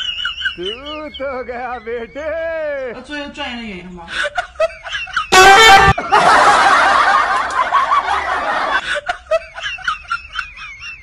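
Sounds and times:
crowd laughing: 4.1s - 11.0s
loud horn blast: 5.4s - 6.0s.

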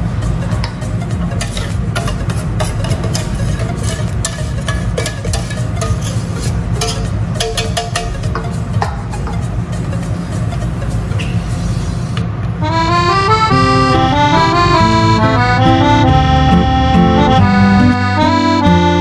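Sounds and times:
low beat: 0.0s - 11.8s, 12.6s - 19.0s
accordion melody: 12.6s - 19.0s.

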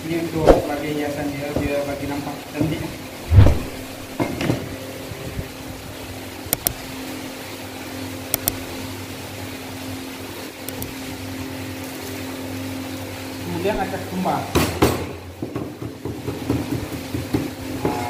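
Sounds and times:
machine hum: 2.2s - 14.1s.

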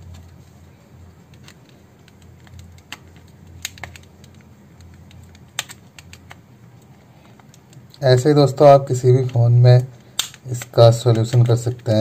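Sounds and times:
low steady hum: 0.0s - 12.0s
plastic phone case clicking: 1.3s - 6.4s, 10.1s - 11.4s.

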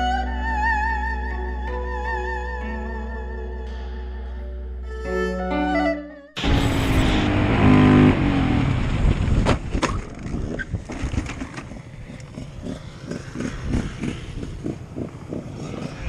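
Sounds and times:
wind rush: 6.4s - 16.0s
motorcycle engine running: 7.2s - 16.0s.

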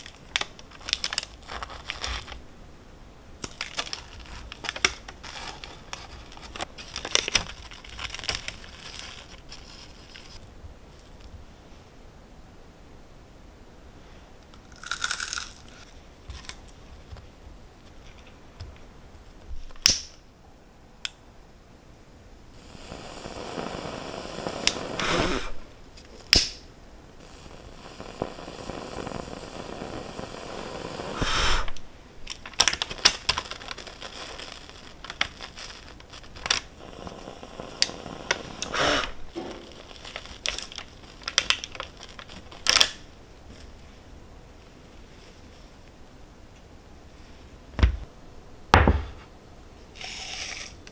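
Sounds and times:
cookies being handled: 0.0s - 2.4s, 3.4s - 10.4s, 32.3s - 43.8s
parchment paper crinkling: 0.0s - 2.4s, 3.4s - 10.4s, 32.3s - 37.2s, 39.3s - 43.8s
kitchen torch hissing: 3.5s - 7.7s, 22.5s - 31.9s, 32.6s - 43.1s.

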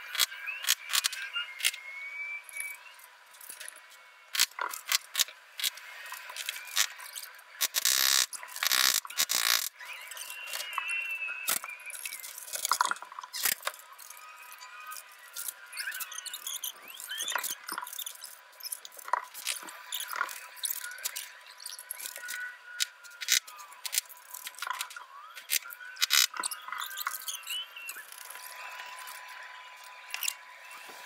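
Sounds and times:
high squeaky chirps: 6.6s - 29.3s.

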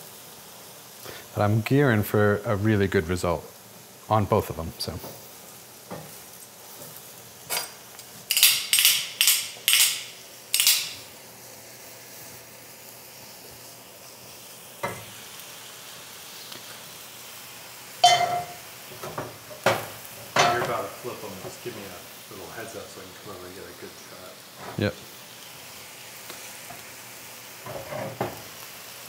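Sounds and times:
mushrooms sizzling in skillet: 0.0s - 29.0s
water hissing: 0.0s - 29.0s
metal clanks against skillet: 7.5s - 11.1s, 14.8s - 15.1s, 18.0s - 20.8s.

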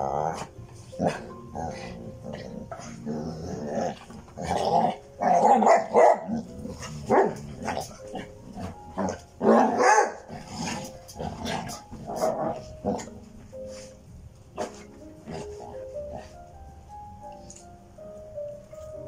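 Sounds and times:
dogs growling: 0.0s - 13.3s, 14.6s - 16.5s
dogs barking: 3.8s - 13.2s.

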